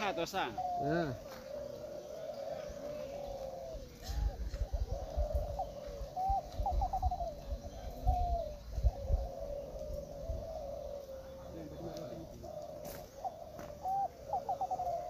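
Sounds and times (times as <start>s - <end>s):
doves cooing: 0.0s - 15.0s
wind rumble on microphone: 3.7s - 10.9s.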